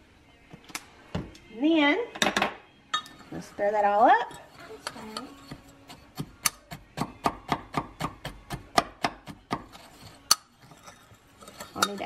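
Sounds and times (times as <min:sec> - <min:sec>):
metal spoon clinking against glass: 0:02.9 - 0:03.2, 0:10.0 - 0:12.0.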